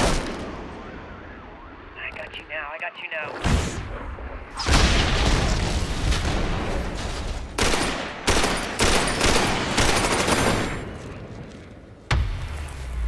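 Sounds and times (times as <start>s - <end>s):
explosion: 3.4s - 7.2s
rapid automatic gunfire: 7.6s - 10.8s.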